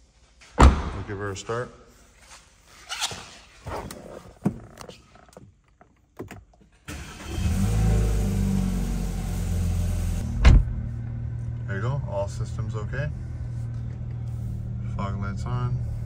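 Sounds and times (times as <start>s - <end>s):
car engine cold start idling: 6.9s - 10.2s
sharp thump: 10.4s - 10.8s.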